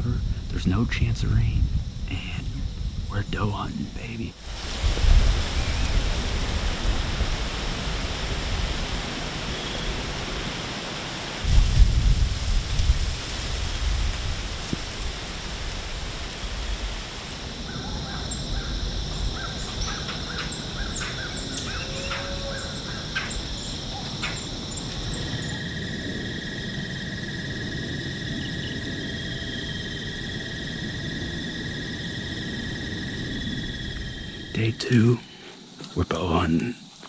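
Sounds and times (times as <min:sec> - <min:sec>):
low rumble: 0:00.0 - 0:08.6
crow cawing: 0:17.7 - 0:23.4.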